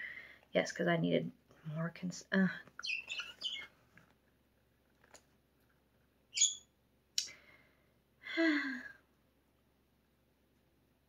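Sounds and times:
cage bird chirp: 2.8s - 3.7s, 6.3s - 6.8s.

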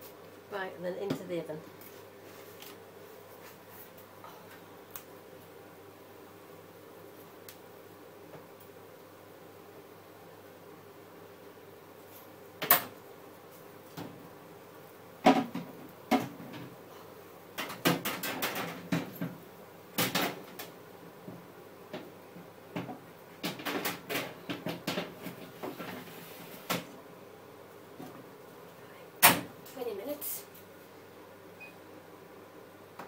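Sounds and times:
kitchen clatter of pans and doors: 17.6s - 19.4s, 20.0s - 20.6s, 22.8s - 26.9s.

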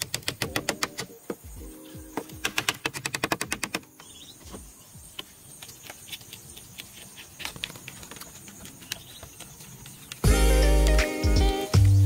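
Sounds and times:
bamboo clicking and tapping: 0.0s - 1.4s, 2.1s - 4.1s, 5.1s - 10.3s.

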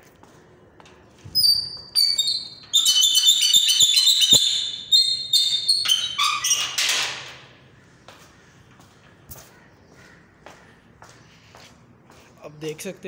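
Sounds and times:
gate hinges squealing: 1.4s - 7.5s
gate scraping: 1.4s - 7.5s.

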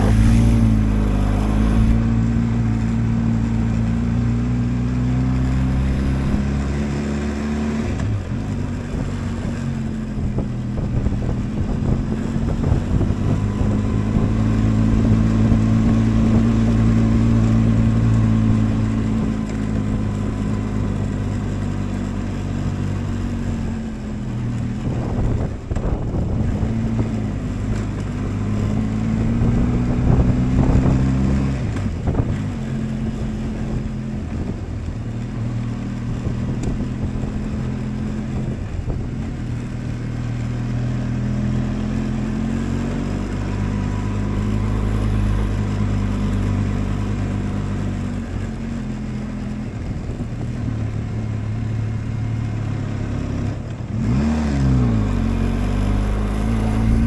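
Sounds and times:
motorcycle engine running: 0.0s - 54.1s, 54.7s - 57.0s.

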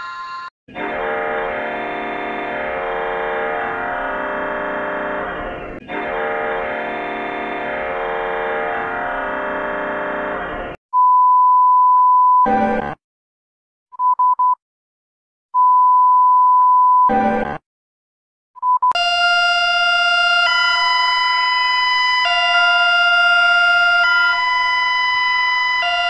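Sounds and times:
electronic warning siren: 0.8s - 10.8s, 19.0s - 26.0s
longer steady beep: 11.0s - 12.6s, 15.6s - 17.3s
short beeps: 11.0s - 12.7s, 15.6s - 17.2s.

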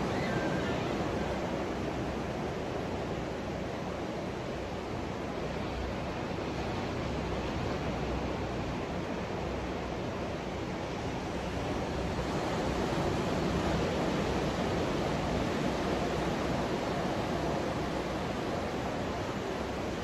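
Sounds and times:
ocean surf breaking on beach: 0.0s - 20.0s.

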